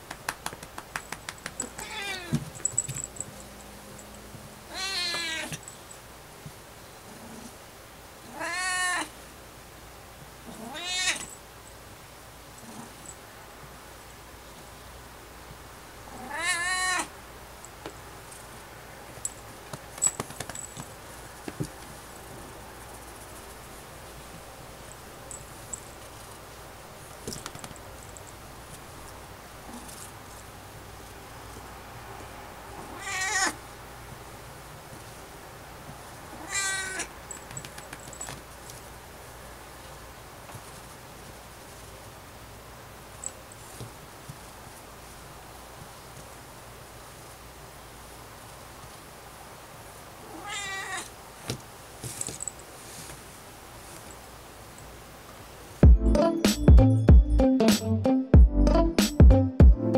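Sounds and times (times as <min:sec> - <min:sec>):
hand patting cat: 0:00.0 - 0:02.9, 0:19.7 - 0:21.9, 0:37.3 - 0:38.4
hand rubbing fur: 0:00.0 - 0:03.3, 0:19.1 - 0:31.7, 0:34.6 - 0:39.0, 0:40.4 - 0:42.2, 0:51.9 - 0:54.4
cat meowing: 0:01.8 - 0:02.4, 0:04.7 - 0:05.6, 0:08.3 - 0:09.1, 0:10.5 - 0:11.3, 0:16.1 - 0:17.1, 0:32.9 - 0:33.6, 0:36.4 - 0:37.1, 0:50.3 - 0:51.1.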